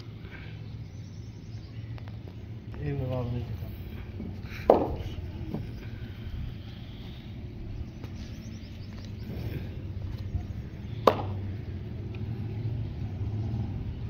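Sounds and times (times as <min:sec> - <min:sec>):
steady low rumble: 0:00.0 - 0:14.0
sharp crack: 0:11.0 - 0:11.4.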